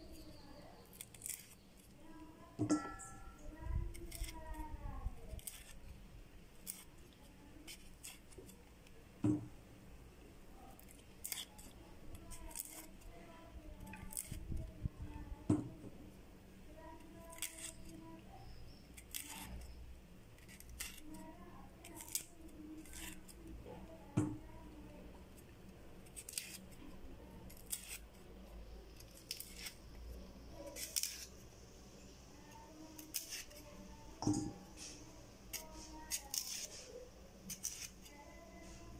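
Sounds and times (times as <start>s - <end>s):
knife scraping pod skin: 0.2s - 2.0s, 3.1s - 4.6s, 5.2s - 8.8s, 10.7s - 13.1s, 13.9s - 14.6s, 17.2s - 19.8s, 20.4s - 21.2s, 21.8s - 23.4s, 26.0s - 26.8s, 27.4s - 28.2s, 28.9s - 29.9s, 30.6s - 31.4s, 32.9s - 33.7s, 34.4s - 38.2s.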